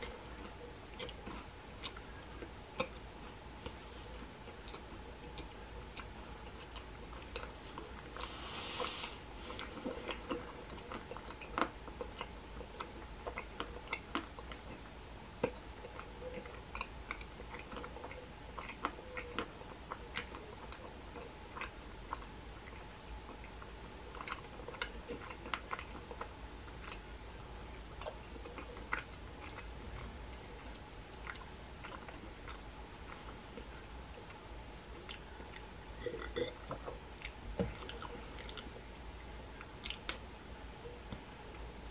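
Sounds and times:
mouth chewing clicks and smacks: 0.0 - 8.3, 9.5 - 27.1, 27.7 - 40.2
faint steady hum: 0.0 - 41.9
breath hiss: 8.2 - 9.6.

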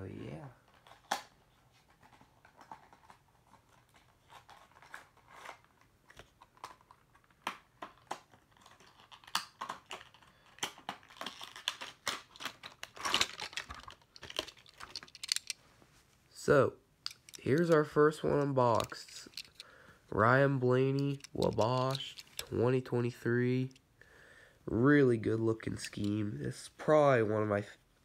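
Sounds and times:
box packaging clicks: 6.4 - 15.5.

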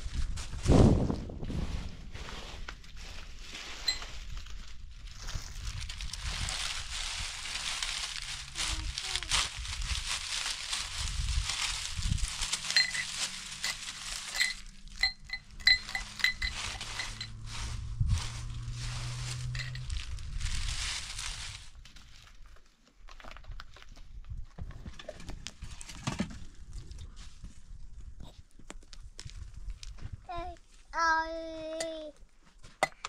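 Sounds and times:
light metallic clinks: 12.8 - 17.4.

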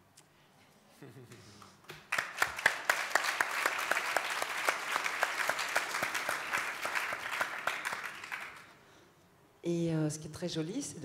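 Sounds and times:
audience applauding: 1.9 - 8.8.

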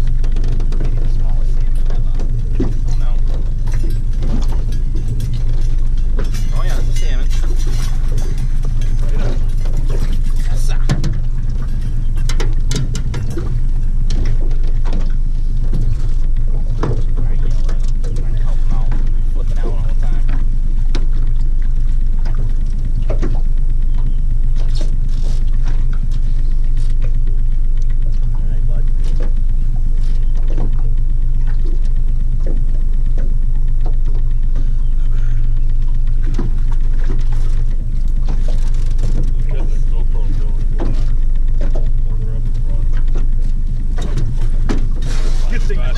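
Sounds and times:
fishing gear clicking and knocking: 0.0 - 19.2, 29.0 - 45.8
small boat motor drone: 0.0 - 45.9.

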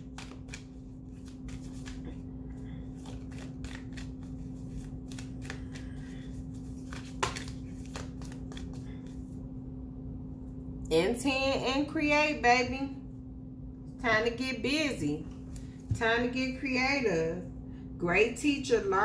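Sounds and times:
cards shuffled by hand: 0.0 - 9.4
low hum: 0.0 - 19.0.

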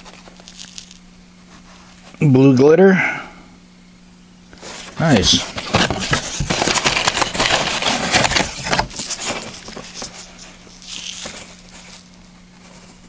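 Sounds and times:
low steady hum: 0.0 - 13.0
rustling and knocking in cardboard box: 5.2 - 11.9.

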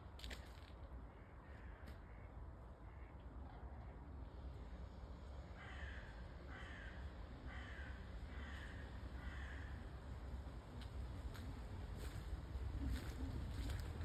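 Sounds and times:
crow cawing: 1.1 - 3.1, 5.6 - 9.9.

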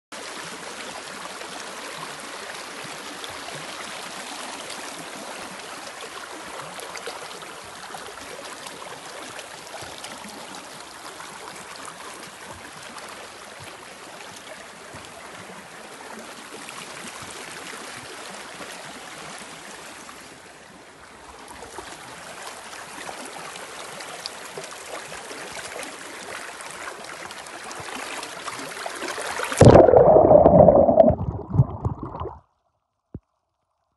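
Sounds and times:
stream rushing over rocks: 23.2 - 32.4.

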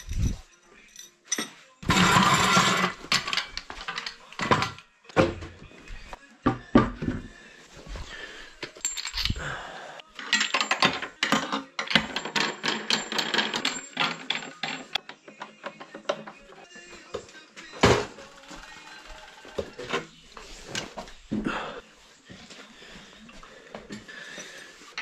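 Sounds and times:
metal tools clinking and clattering: 0.0 - 4.8, 8.6 - 9.6, 10.2 - 16.3.

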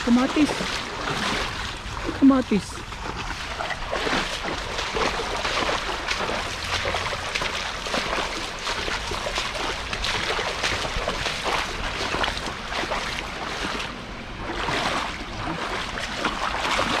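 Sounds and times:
creek water splashing: 0.0 - 17.0.

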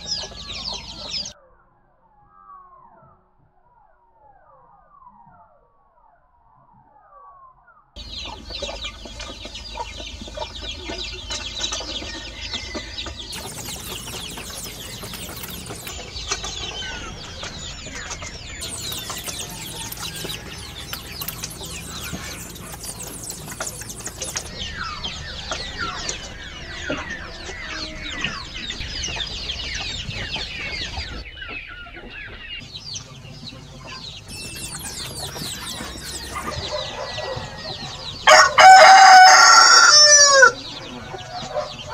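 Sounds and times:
chickens clucking: 0.0 - 1.3, 8.0 - 41.9
short bird chirps: 12.0 - 27.1, 34.3 - 38.0
steady hum of even tones: 13.3 - 27.7, 34.2 - 37.2.

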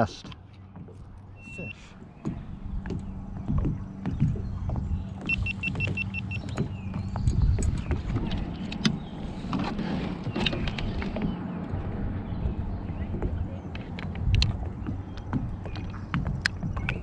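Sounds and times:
steady low hum: 0.0 - 17.0
fishing gear clicks and knocks: 12.5 - 17.0.

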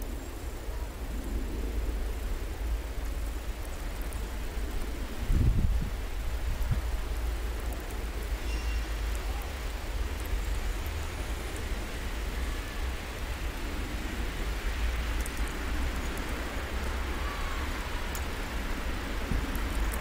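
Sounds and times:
wind buffeting microphone: 4.6 - 7.0
faint ticks: 7.5 - 9.3, 15.0 - 16.4, 18.0 - 18.4, 19.3 - 20.0.

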